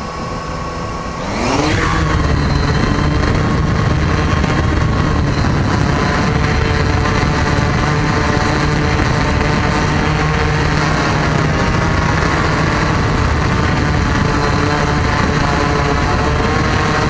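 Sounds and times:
drone propellers buzzing: 0.0s - 17.0s.

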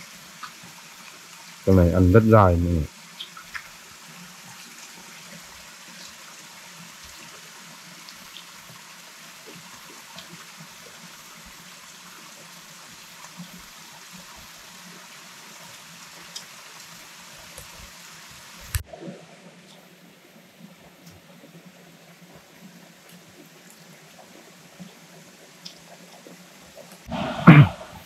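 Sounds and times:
running water hiss: 0.0s - 28.0s.

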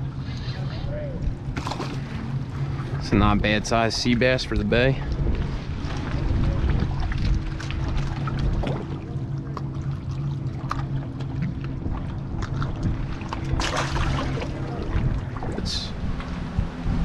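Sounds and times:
fish splashing into water: 1.5s - 2.1s, 12.4s - 15.4s.

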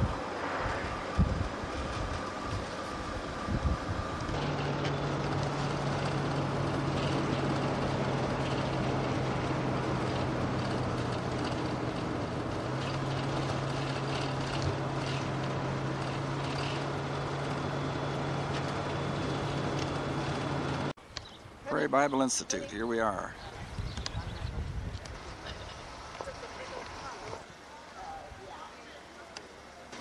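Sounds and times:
engine hum: 0.0s - 21.8s
road and tyre noise: 0.0s - 30.0s.

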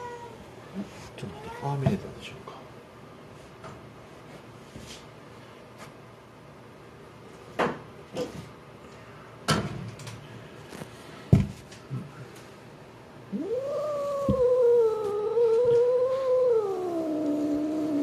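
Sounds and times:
thump: 11.3s - 11.6s
cat yowling: 13.3s - 18.0s.

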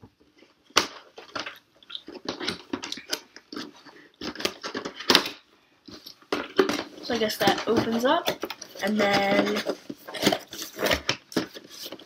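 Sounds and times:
cardboard box being opened: 8.3s - 12.0s.

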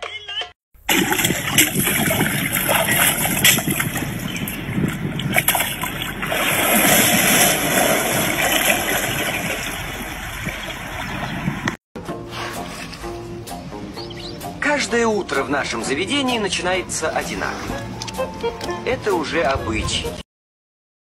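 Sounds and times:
churning water: 0.8s - 11.8s
big splash into water: 0.9s - 11.7s.

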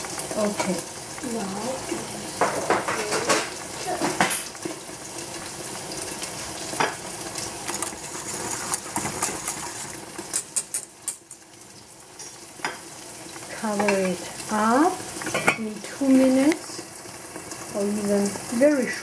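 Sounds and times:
utensil scraping metal pot: 6.7s - 11.3s.

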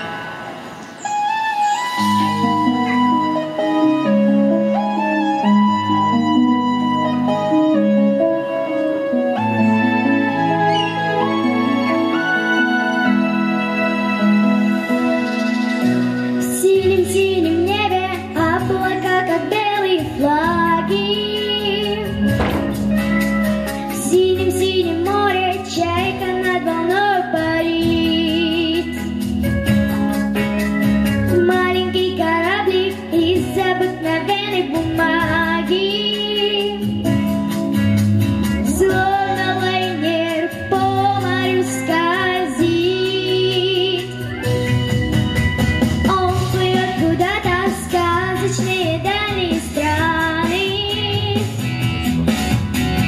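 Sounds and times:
instrumental accompaniment: 0.0s - 16.4s, 21.8s - 26.5s
pop backing track: 0.0s - 53.0s
girl singing into a microphone: 16.4s - 22.3s, 23.9s - 29.3s, 31.3s - 37.3s, 38.6s - 44.6s, 46.0s - 51.6s.

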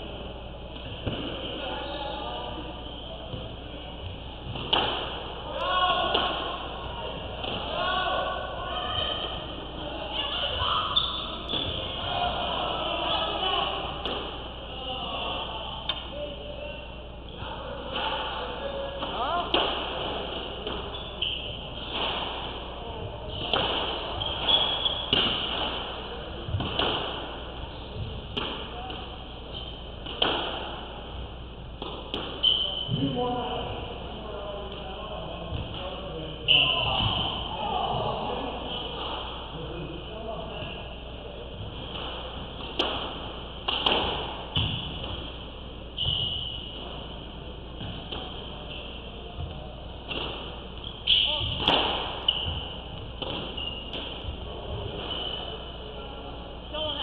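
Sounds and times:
racket striking squash ball: 4.5s - 5.4s, 19.0s - 20.9s, 21.8s - 22.7s, 23.3s - 27.5s, 28.3s - 29.1s, 30.0s - 31.1s, 31.8s - 33.1s, 41.7s - 45.4s, 50.0s - 55.5s.

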